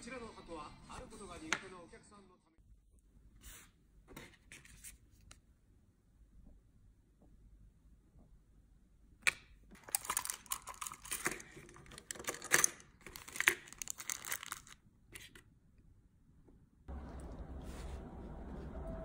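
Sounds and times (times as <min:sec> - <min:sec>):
plastic wrapping crinkling: 0:09.8 - 0:14.8.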